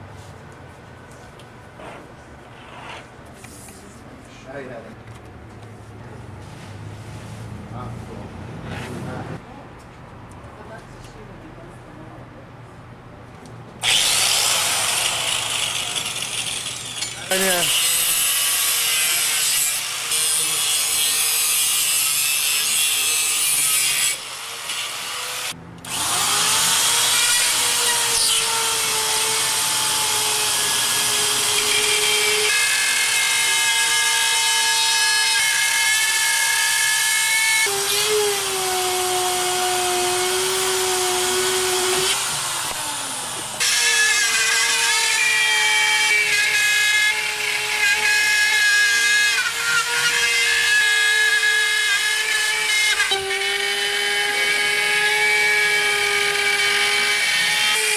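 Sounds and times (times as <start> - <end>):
angle grinder cutting: 13.8 - 57.9.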